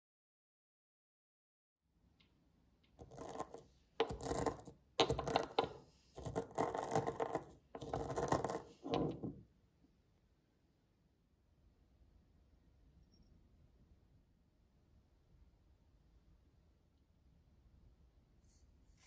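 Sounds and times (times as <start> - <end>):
pestle grinding seeds in mortar: 3.0 - 9.3.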